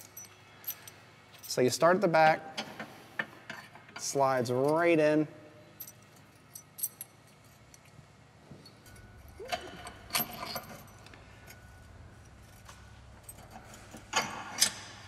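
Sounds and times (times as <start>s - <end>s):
small steel hardware clinking: 5.8s - 8.0s.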